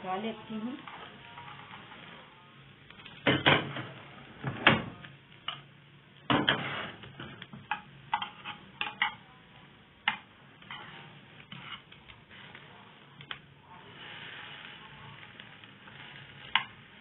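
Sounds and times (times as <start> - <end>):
metal utensil clinking on frying pan: 7.6 - 9.2.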